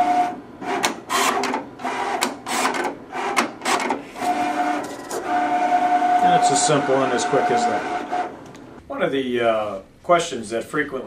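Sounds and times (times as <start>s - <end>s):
cutting head scraping vinyl: 0.0s - 8.8s
plotter motors whining: 0.0s - 8.8s.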